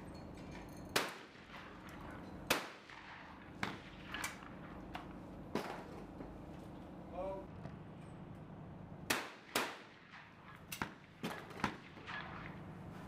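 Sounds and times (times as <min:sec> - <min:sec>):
shotgun shots: 0:01.0 - 0:01.9, 0:02.5 - 0:04.8, 0:09.1 - 0:12.7.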